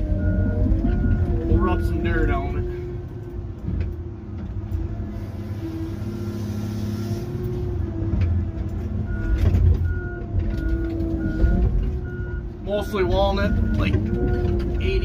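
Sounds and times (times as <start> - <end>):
diesel engine and hydraulics running: 0.0 - 15.0
machine warning beeper: 0.2 - 2.6, 9.1 - 15.0.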